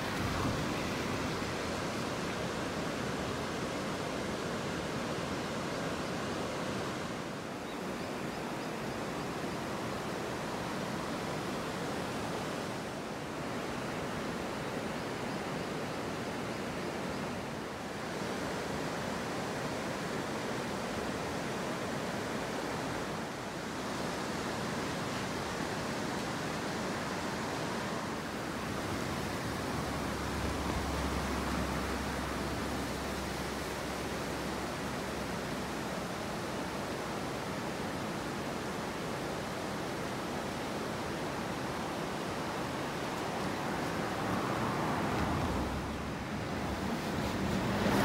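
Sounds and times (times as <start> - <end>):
river flowing: 0.0 - 48.0
rain falling: 28.4 - 36.8, 42.6 - 48.0.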